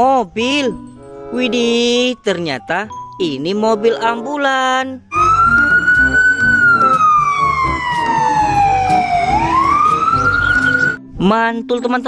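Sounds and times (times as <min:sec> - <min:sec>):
ambulance siren wailing: 0:05.1 - 0:11.0.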